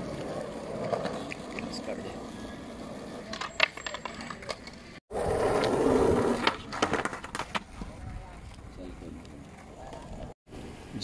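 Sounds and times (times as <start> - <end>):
skateboard wheels rolling on concrete: 0.0 - 11.0
skateboard clacks: 3.2 - 8.0.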